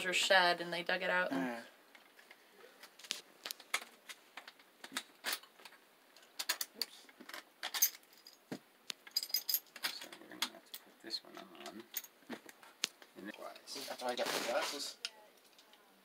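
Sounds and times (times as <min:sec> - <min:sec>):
metal parts clinking: 0:06.2 - 0:08.4, 0:09.0 - 0:10.8, 0:11.4 - 0:12.2.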